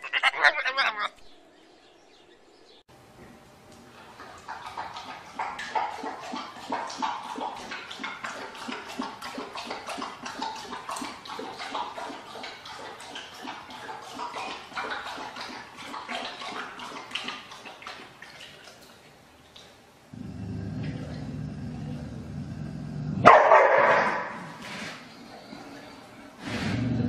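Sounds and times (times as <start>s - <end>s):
animal lapping water: 3.8s - 22.2s.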